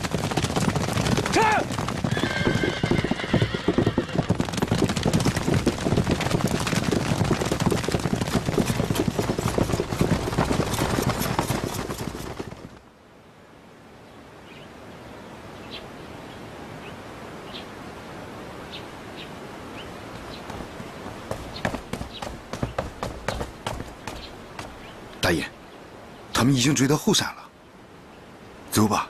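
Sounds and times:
horses galloping: 0.0s - 12.9s, 20.0s - 25.2s.

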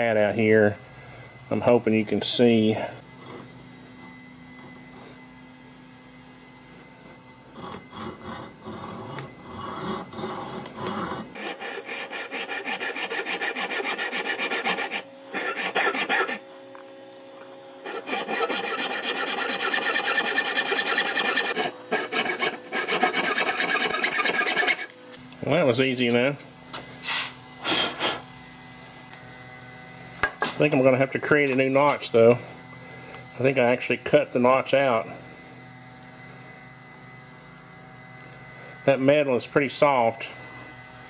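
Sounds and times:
hacksaw cutting metal: 7.5s - 16.4s, 17.8s - 25.0s.

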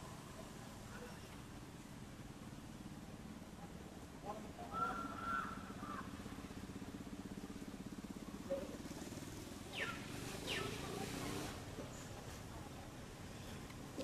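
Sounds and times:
distant engine humming: 2.2s - 14.0s
short high falling calls: 9.7s - 10.8s.

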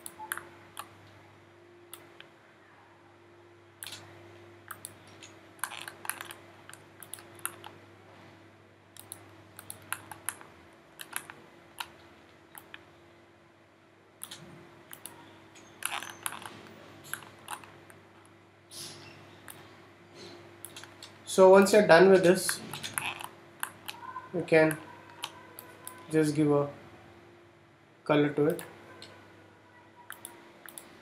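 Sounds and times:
faint steady hum: 0.0s - 31.0s
mouse and keyboard clicking: 4.7s - 7.8s, 9.0s - 12.8s, 14.2s - 17.7s, 20.6s - 21.2s, 22.2s - 24.1s, 30.1s - 30.9s.

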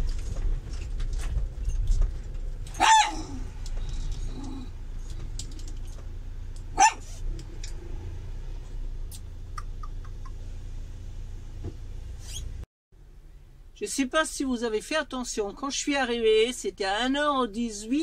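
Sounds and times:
dog yipping: 2.7s - 3.5s, 6.7s - 7.2s.

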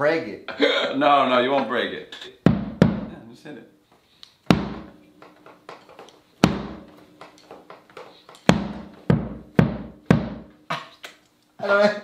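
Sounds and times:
big drum hits: 2.5s - 3.2s, 4.5s - 5.0s, 6.4s - 7.2s, 8.5s - 10.5s.

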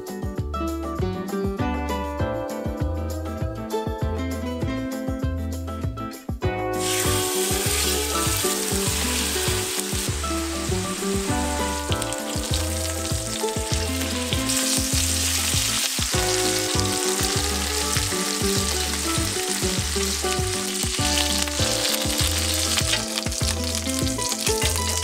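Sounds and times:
background music with bass beat: 0.0s - 25.0s
chicken sizzling in a frying pan: 6.8s - 25.0s.

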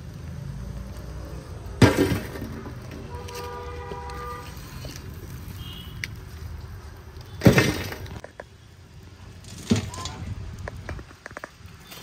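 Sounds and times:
metal ladle scraping embers: 2.6s - 6.1s.

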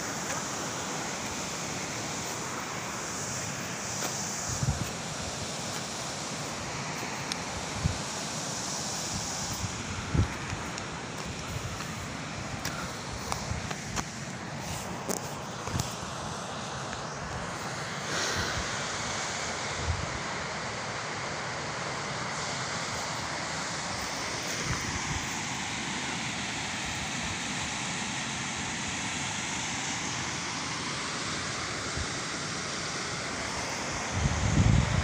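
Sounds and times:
wind on microphone: 4.4s - 5.0s, 9.1s - 13.8s, 34.1s - 35.0s.

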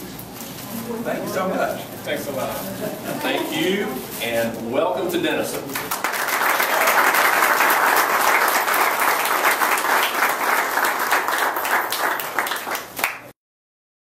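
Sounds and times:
audience applauding: 5.8s - 13.3s.

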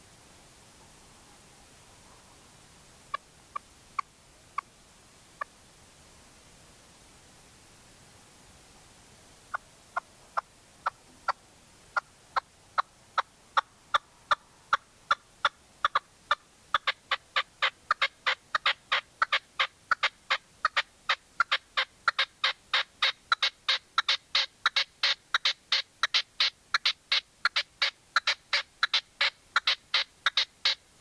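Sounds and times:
partridge calling sharp notes: 12.0s - 30.9s.

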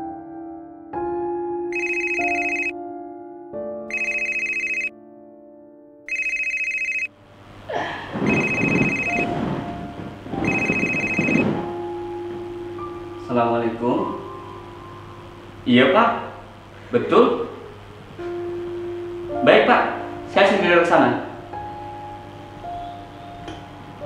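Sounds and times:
slow sad piano notes: 0.0s - 3.9s, 9.1s - 10.6s, 11.4s - 24.0s
mobile phone ringtone: 1.7s - 2.7s, 3.9s - 4.9s, 6.1s - 7.1s, 8.2s - 9.4s, 10.4s - 11.6s.

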